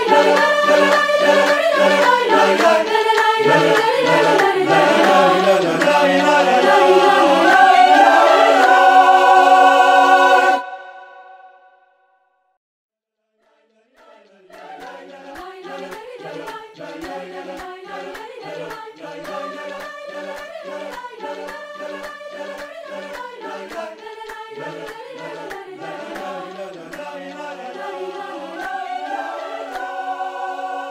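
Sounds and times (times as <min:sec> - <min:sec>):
hand percussion clicks: 0:00.0 - 0:07.4, 0:14.6 - 0:28.6
mixed choir singing: 0:00.0 - 0:11.7, 0:13.4 - 0:30.9.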